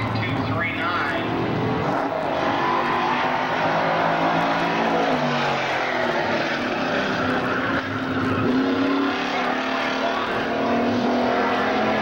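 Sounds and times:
stock car engines running: 0.0 - 12.0.

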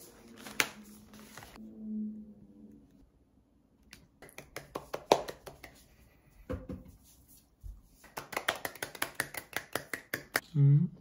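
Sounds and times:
hands clapping quickly: 4.2 - 5.9, 8.0 - 10.4.

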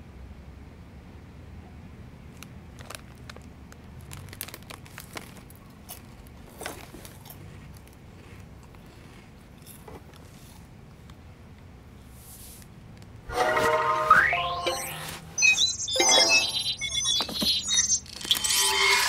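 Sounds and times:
foil chip bag crinkling: 2.4 - 9.0
chips crunching: 2.8 - 9.9.

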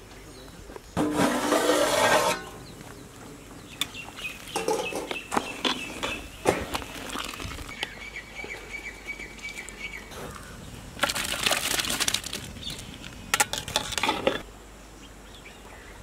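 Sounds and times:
bird chirping: 2.4 - 10.9.

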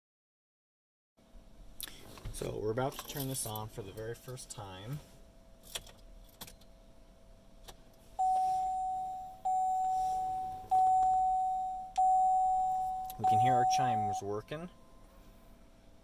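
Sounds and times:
single-tone warning chimes: 8.2 - 15.1.

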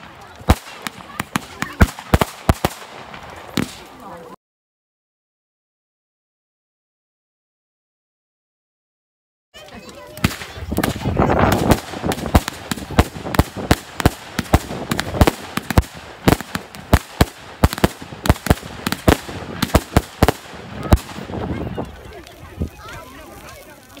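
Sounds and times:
fireworks bangs: 0.0 - 4.3, 9.9 - 22.7
fireworks crackling: 0.0 - 4.4, 9.6 - 24.0.

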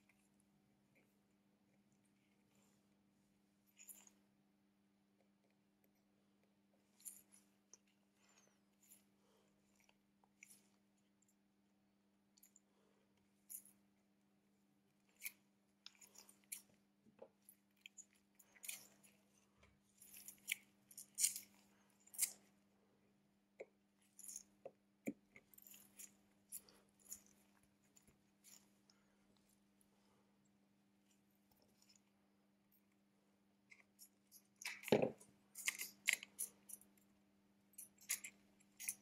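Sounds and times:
faint steady hum: 0.0 - 39.0
small tool clicks and scrapes: 20.0 - 22.5, 33.7 - 37.0, 37.8 - 39.0.

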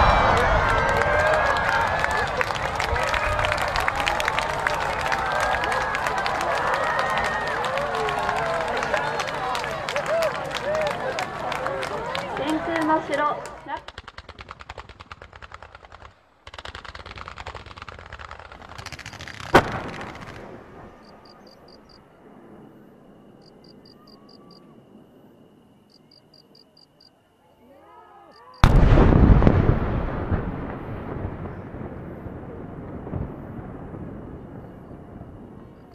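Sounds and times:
fireworks crackling volleys: 0.0 - 23.8, 28.6 - 35.9
sharp firework bang: 19.4 - 21.0, 28.6 - 32.0.

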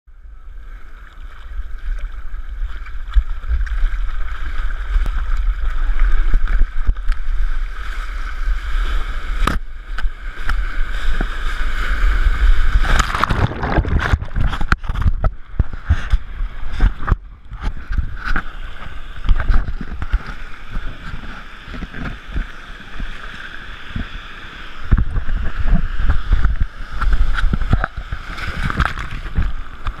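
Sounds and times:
steady low rumble: 0.1 - 22.6
wave breaking: 0.5 - 30.0
sea water sloshing against camera: 0.6 - 30.0.

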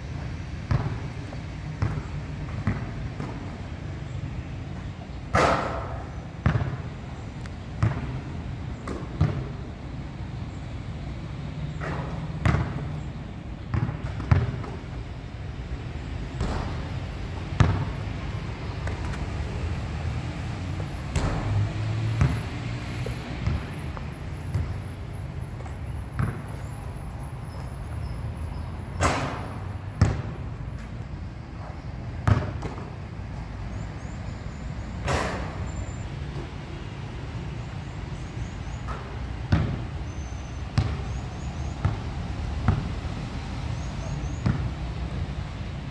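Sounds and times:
basketball bouncing on court: 0.6 - 3.6, 5.3 - 7.1, 7.7 - 9.7, 11.7 - 13.0, 13.6 - 15.0, 16.4 - 20.1, 20.8 - 26.6, 29.0 - 30.9, 32.1 - 33.0, 38.9 - 43.0, 44.2 - 45.0
ball striking the hoop: 0.7 - 1.0, 1.8 - 3.4, 5.3 - 6.8, 7.8 - 8.2, 8.8 - 9.5, 11.8 - 12.9, 13.7 - 14.8, 16.4 - 16.9, 17.6 - 17.9, 21.1 - 21.6, 22.2 - 22.5, 24.4 - 24.8, 26.2 - 26.4, 29.0 - 30.4, 32.2 - 32.9, 38.9 - 39.8, 40.8 - 41.1, 44.4 - 44.7.

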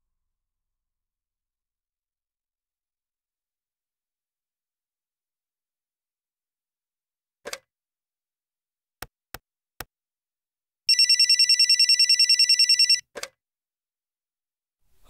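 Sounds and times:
electronic phone ringer trilling: 10.9 - 13.1.

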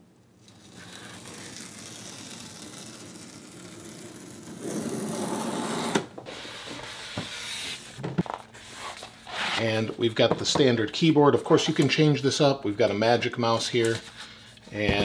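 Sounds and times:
tape peeling off cardboard: 0.4 - 6.1
cardboard rubbing and scraping: 0.6 - 9.6.

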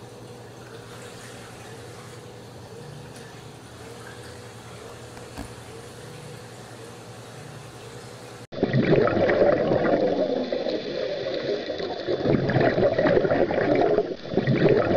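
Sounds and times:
water bubbling and popping: 8.5 - 14.9.

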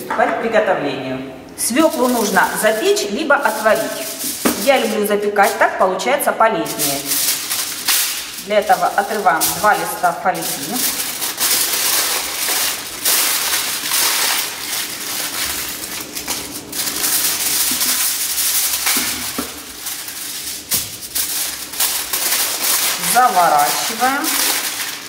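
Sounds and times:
kitchen foil crinkling: 1.6 - 25.0.

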